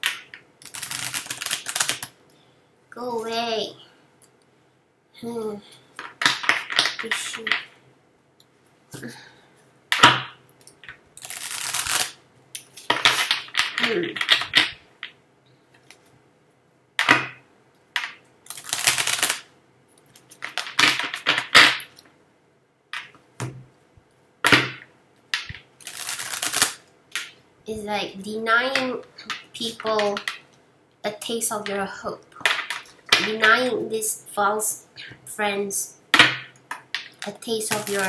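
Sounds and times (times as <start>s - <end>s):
cards being shuffled: 0.6s - 2.1s, 11.2s - 12.2s, 18.5s - 19.4s, 25.5s - 26.8s.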